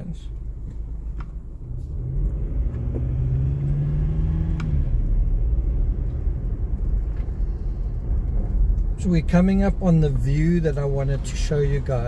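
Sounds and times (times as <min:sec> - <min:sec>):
car cabin engine and road rumble: 0:00.0 - 0:12.0
engine hum: 0:00.0 - 0:12.0.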